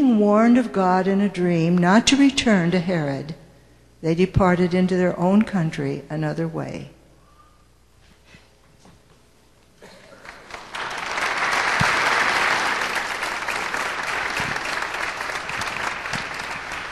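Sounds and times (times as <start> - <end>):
audience applauding: 10.2 - 16.9.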